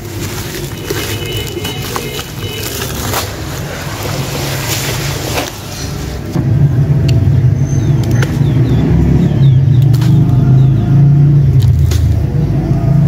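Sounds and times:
chunks splashing into bucket of water: 0.0 - 6.1
low rumble with pitched hum: 0.0 - 13.0.

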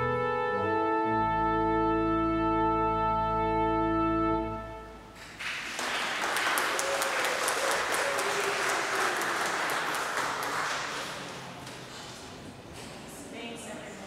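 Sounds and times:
pipe organ chord: 0.0 - 5.2
congregation applauding: 5.2 - 12.2.

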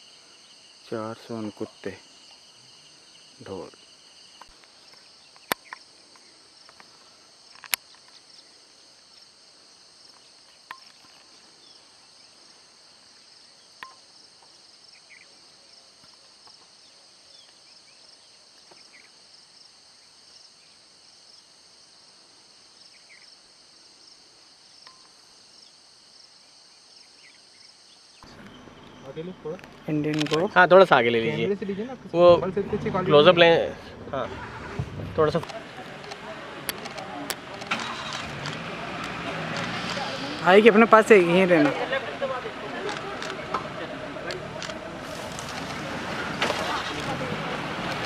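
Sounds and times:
crickets trilling: 0.0 - 48.0
sharp clicks: 35.4 - 40.5, 42.8 - 45.8.

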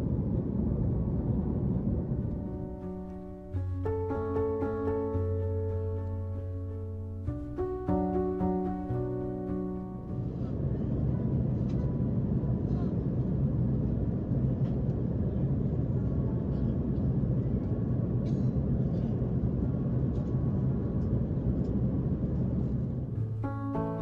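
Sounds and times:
airliner cabin rumble: 0.0 - 24.0.

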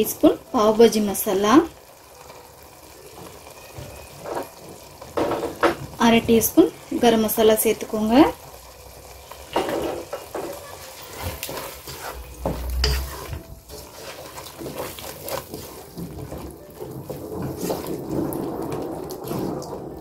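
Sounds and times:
wet stirring of thick sauce: 8.4 - 19.8.

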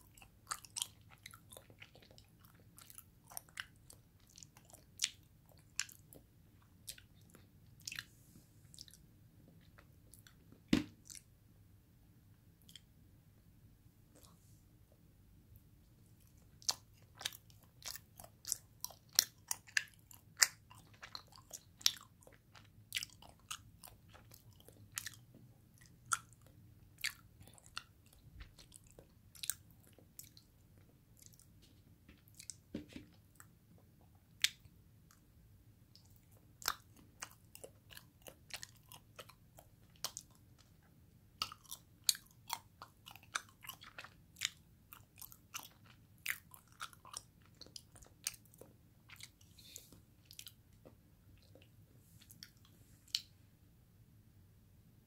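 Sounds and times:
chewing mouth clicks and smacks: 0.0 - 8.1, 8.7 - 9.0, 9.6 - 11.3, 12.6 - 12.9, 16.2 - 35.2, 35.9 - 53.3.

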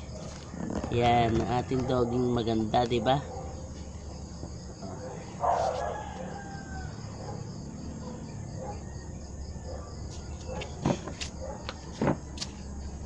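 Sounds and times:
insects chirring: 0.0 - 13.0
rooster crowing: 5.0 - 10.7.

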